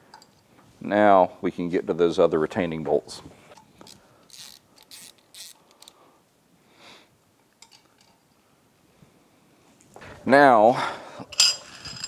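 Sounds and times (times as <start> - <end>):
ratchet scrapes and clicks: 3.9 - 6.0.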